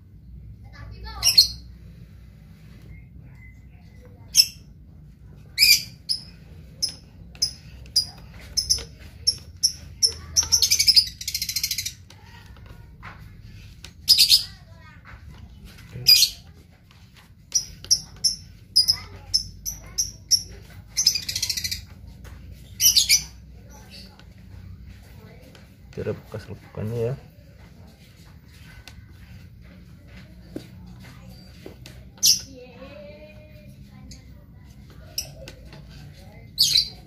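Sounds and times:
small bird chirping: 0:01.0 - 0:02.0, 0:05.4 - 0:12.5, 0:14.0 - 0:15.0, 0:15.8 - 0:16.6, 0:17.5 - 0:25.4, 0:35.0 - 0:37.0
buzzy bird trills: 0:05.5 - 0:12.4.

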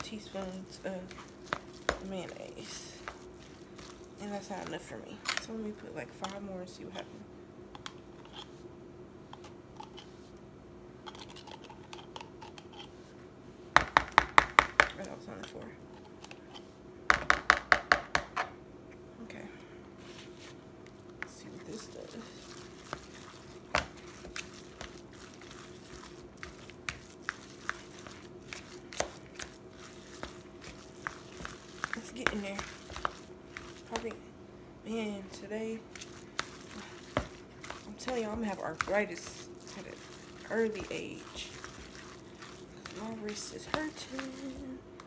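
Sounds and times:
fork scraping plastic bowl: 0:22.2 - 0:34.2, 0:35.9 - 0:44.7.

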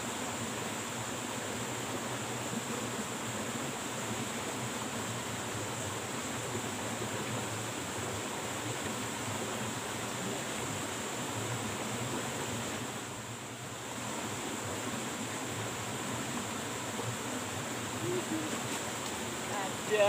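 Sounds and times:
flowing river water: 0:00.0 - 0:20.0
high-pitched hiss: 0:07.6 - 0:20.0.

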